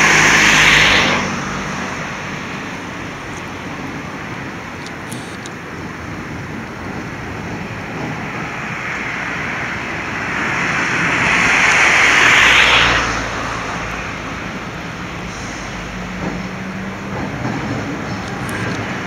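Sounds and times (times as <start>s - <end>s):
car passing close by: 0.0s - 5.3s, 8.1s - 19.0s
traffic noise: 0.0s - 19.0s.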